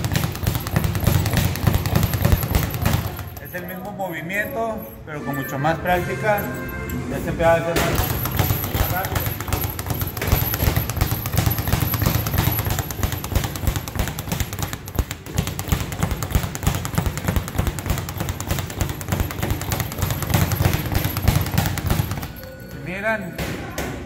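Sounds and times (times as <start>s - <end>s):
speed bag drumming: 0.0s - 3.9s, 7.7s - 22.4s.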